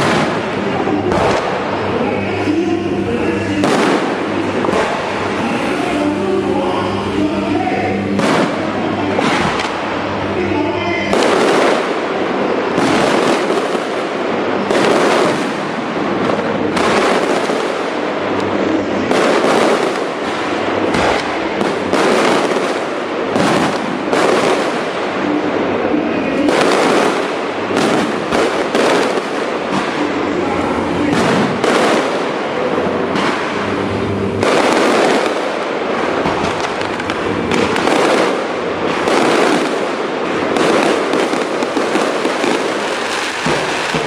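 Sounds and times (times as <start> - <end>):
fireworks crackling and banging: 0.0 - 44.0.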